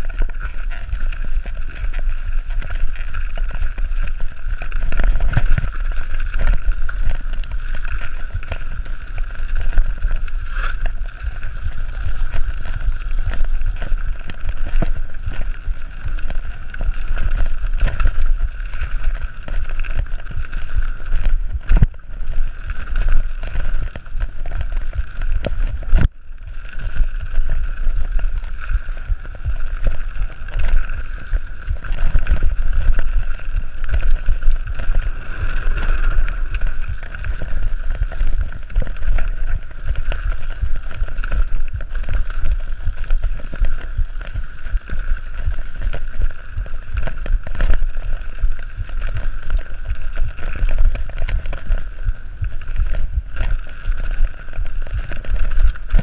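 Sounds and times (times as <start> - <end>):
bike rattling over trail: 0.0 - 56.0
wind buffeting microphone: 21.0 - 53.7, 54.3 - 56.0.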